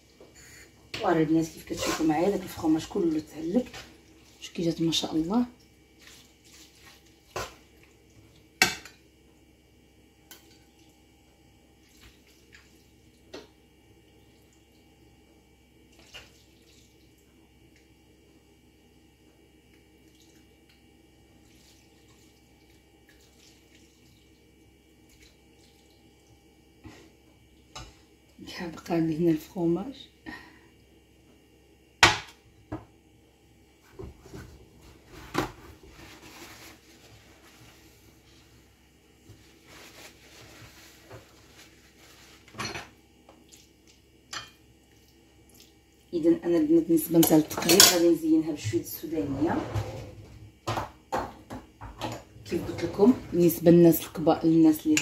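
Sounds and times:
paper towel rustling: 0:06.0 - 0:07.3, 0:34.2 - 0:42.6.

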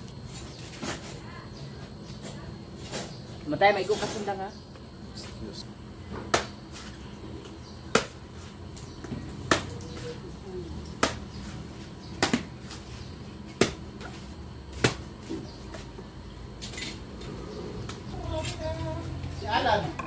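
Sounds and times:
machete chopping coconut: 0:06.3 - 0:06.6, 0:07.9 - 0:08.2, 0:09.4 - 0:09.8, 0:11.0 - 0:11.3, 0:12.2 - 0:12.5, 0:13.5 - 0:13.8, 0:14.7 - 0:15.1.

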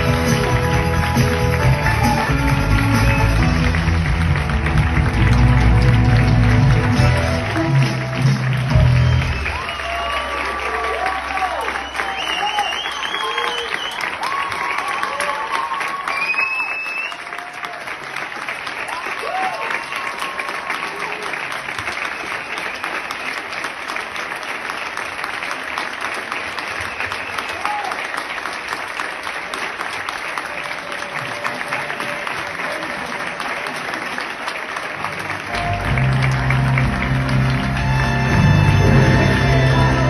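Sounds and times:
music: 0:00.0 - 0:10.3, 0:34.6 - 0:40.0
audience clapping: 0:00.0 - 0:40.0
shouts and cheers: 0:01.1 - 0:02.9, 0:08.7 - 0:18.0, 0:18.8 - 0:21.5, 0:27.4 - 0:28.1.

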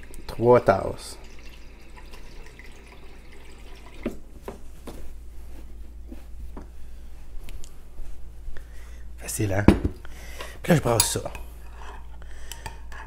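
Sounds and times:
faucet running water into cup: 0:00.0 - 0:04.2.

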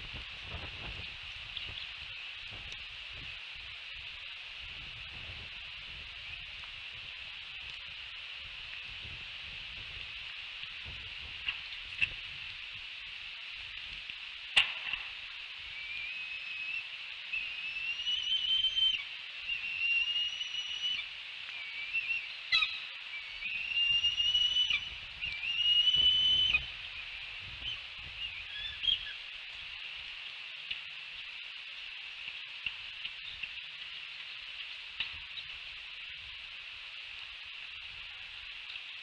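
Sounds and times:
eaglet whistled begging calls: 0:15.7 - 0:29.2.

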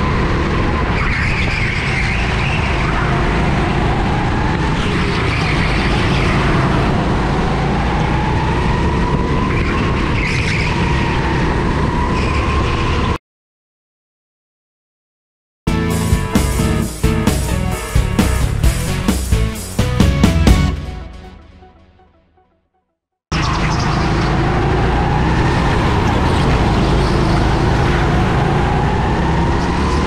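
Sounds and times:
go-kart engine at speed: 0:00.0 - 0:13.2, 0:23.3 - 0:30.0.

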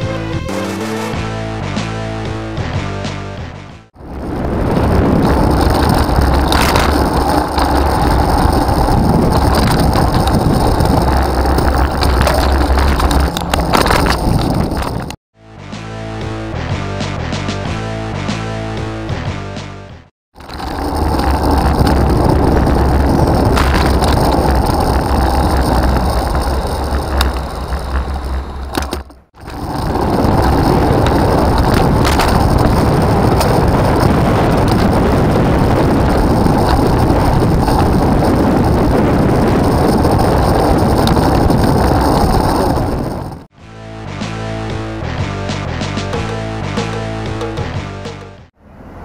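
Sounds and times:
road and tyre noise: 0:04.0 - 0:15.2, 0:20.4 - 0:43.6, 0:47.3 - 0:49.0
wind rumble on microphone: 0:04.0 - 0:15.2, 0:20.4 - 0:43.5.

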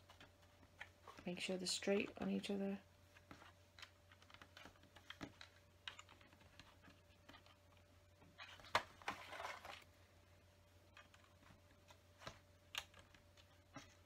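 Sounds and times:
rustle of plastic pieces: 0:08.4 - 0:09.9.

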